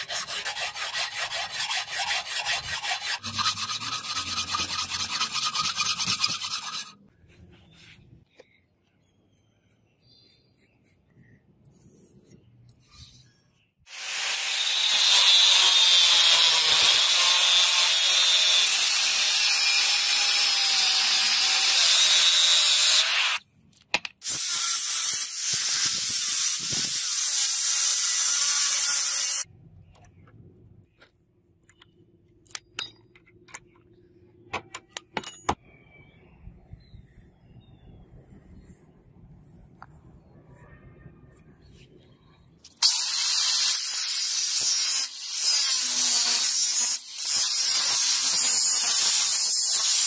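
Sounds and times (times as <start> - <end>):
angle grinder cutting steel: 13.9 - 23.4, 24.2 - 29.4, 42.7 - 50.0.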